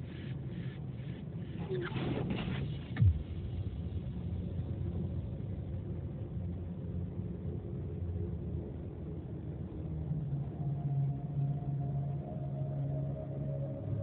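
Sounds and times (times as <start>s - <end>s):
loud thump: 2.4s - 3.4s.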